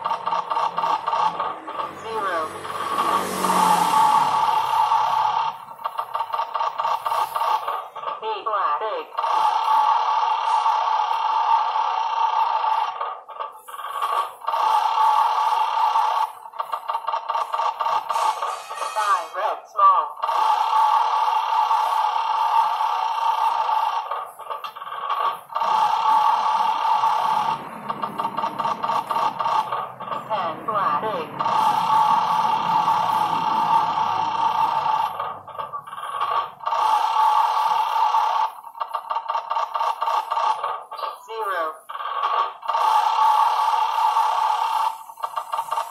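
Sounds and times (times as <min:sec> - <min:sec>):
rapid electronic ticks: 0:00.0 - 0:02.0, 0:02.6 - 0:08.2, 0:13.5 - 0:18.5, 0:20.2 - 0:30.5, 0:31.4 - 0:41.0, 0:41.9 - 0:45.9.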